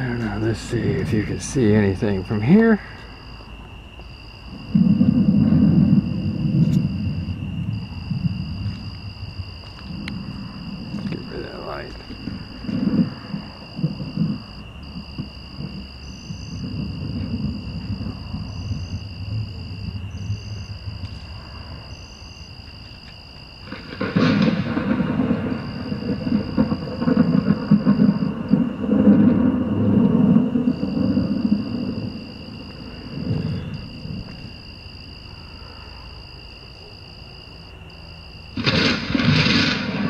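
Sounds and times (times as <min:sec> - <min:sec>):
insects trilling: 0:00.0 - 0:40.0
thunder rumbling and crashing: 0:04.4 - 0:22.0, 0:23.6 - 0:34.8, 0:38.5 - 0:40.0.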